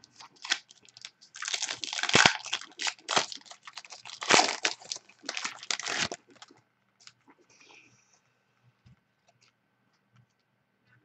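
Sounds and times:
cards and wrapper crinkling: 0:00.0 - 0:06.6.

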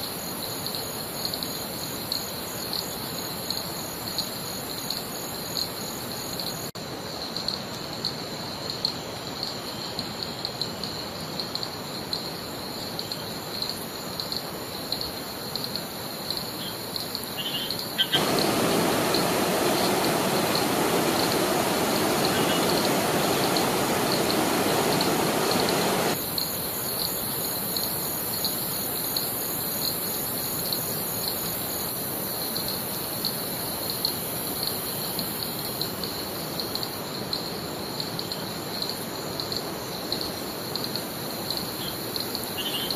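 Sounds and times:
rushing water: 0:18.0 - 0:26.2.

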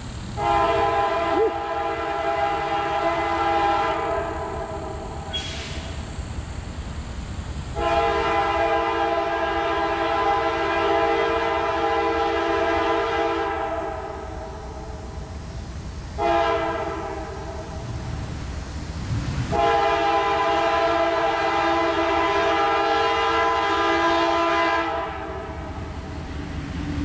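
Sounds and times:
locomotive air horn blasts: 0:00.4 - 0:05.8, 0:07.8 - 0:14.8, 0:16.2 - 0:17.8, 0:19.5 - 0:25.8.

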